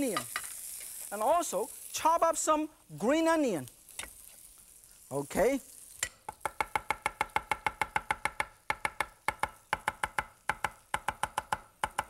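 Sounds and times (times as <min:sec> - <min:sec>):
cleaver chopping on wooden board: 0:06.4 - 0:12.0.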